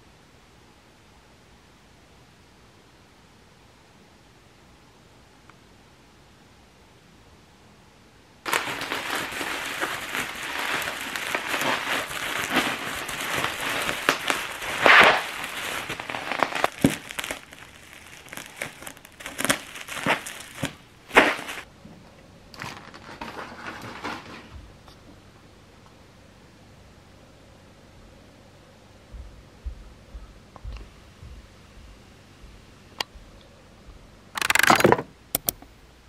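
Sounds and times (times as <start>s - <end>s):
bubble wrap crackling and popping: 8.5s - 21.7s, 22.6s - 24.5s, 34.4s - 34.9s.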